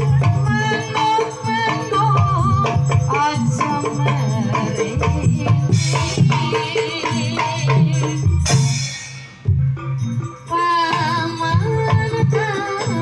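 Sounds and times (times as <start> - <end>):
drums: 0.0 - 13.0
rattling percussion: 0.0 - 13.0.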